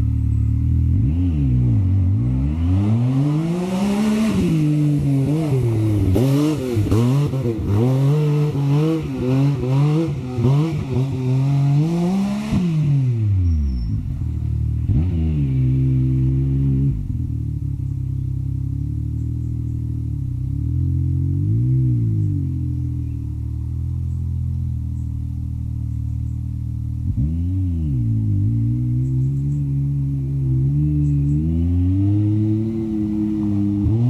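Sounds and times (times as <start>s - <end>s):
engine revving: 0.0s - 34.0s.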